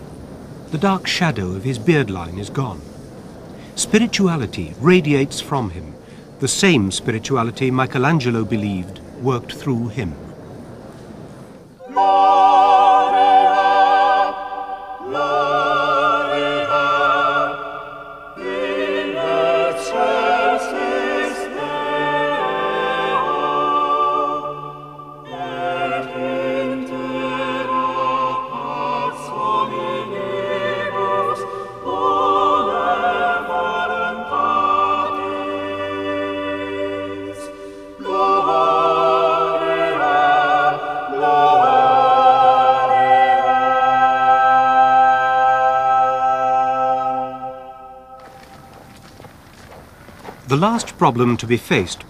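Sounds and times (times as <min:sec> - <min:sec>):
operatic voices singing: 0:11.8 - 0:48.5
low sustained accompaniment: 0:11.8 - 0:49.1.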